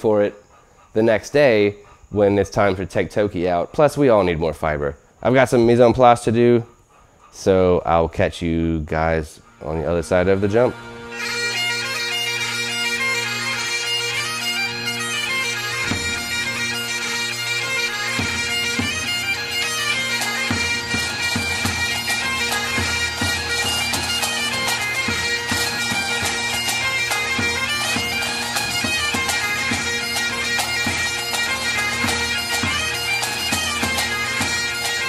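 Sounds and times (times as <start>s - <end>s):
bagpipe melody over drones: 9.4s - 35.0s.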